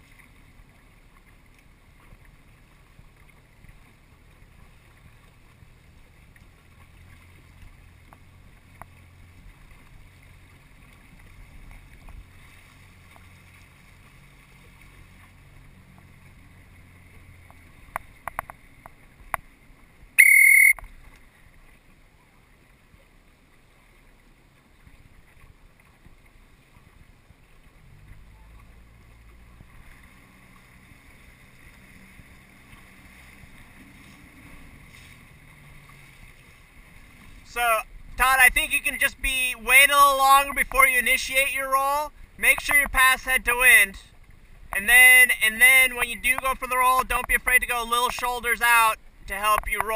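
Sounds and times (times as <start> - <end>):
outboard motor running: 0.0 - 22.8, 24.3 - 49.9
short high-pitched tone: 20.2 - 20.8.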